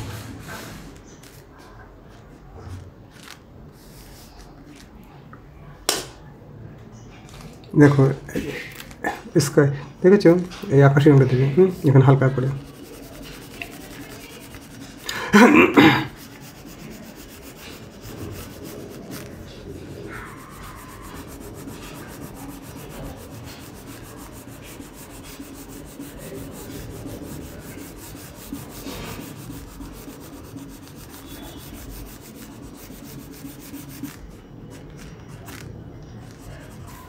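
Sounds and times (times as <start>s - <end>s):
crayon scratching on paper: 10.5s - 37.0s.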